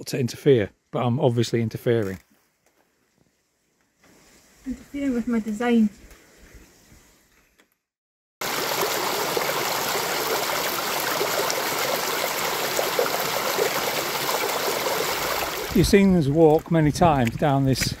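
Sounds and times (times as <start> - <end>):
stream rushing over stones: 8.4 - 16.0.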